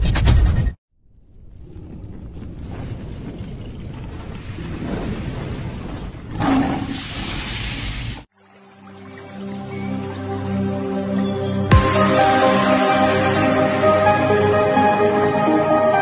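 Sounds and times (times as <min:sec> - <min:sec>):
electronic music: 0:10.7 - 0:16.0.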